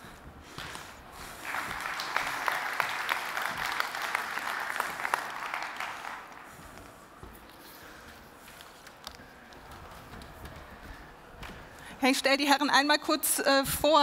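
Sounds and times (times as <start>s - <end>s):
audience applauding: 1.3s - 6.6s.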